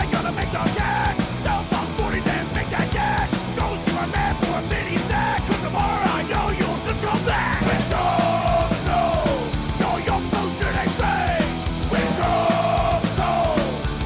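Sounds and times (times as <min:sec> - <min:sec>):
punk rock band playing: 0:00.0 - 0:14.0
steady drum beat: 0:00.0 - 0:14.0.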